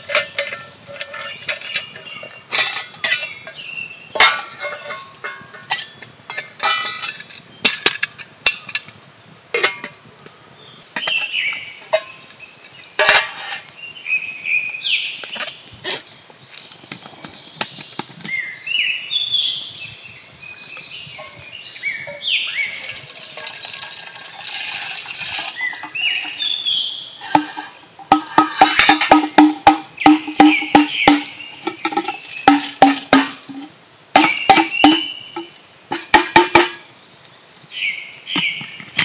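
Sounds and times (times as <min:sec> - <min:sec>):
metal clink on steel cup: 0:04.2 - 0:07.3
liquid pouring and gurgling: 0:22.6 - 0:26.5.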